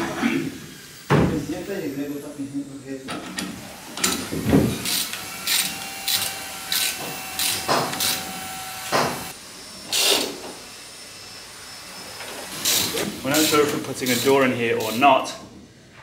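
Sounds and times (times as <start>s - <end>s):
ratchet wrench clicking: 4.8s - 8.3s.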